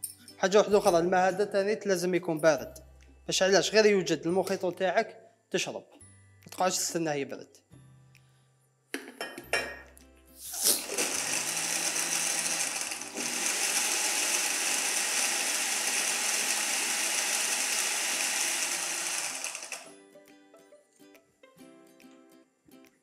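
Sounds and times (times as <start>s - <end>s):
blender crushing ice: 10.6s - 20.0s.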